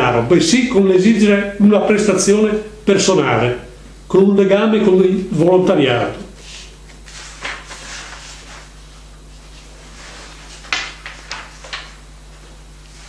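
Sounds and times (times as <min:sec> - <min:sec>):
book pages rustling: 0:06.4 - 0:13.0.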